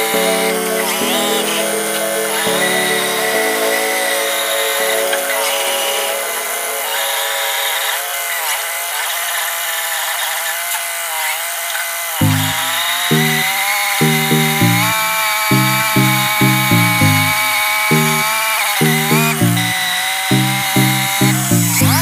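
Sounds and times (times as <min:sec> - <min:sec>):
held pitched tone: 0:12.2 - 0:22.0
rhythmic bass beat: 0:12.2 - 0:22.0.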